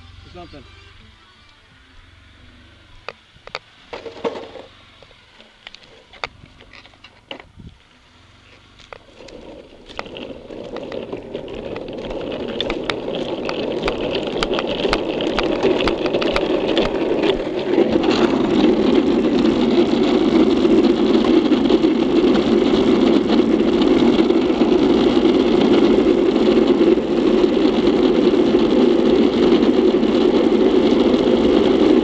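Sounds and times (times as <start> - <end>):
wheels rolling on asphalt: 0.0 - 32.0
wind rushing over camera: 8.8 - 32.0.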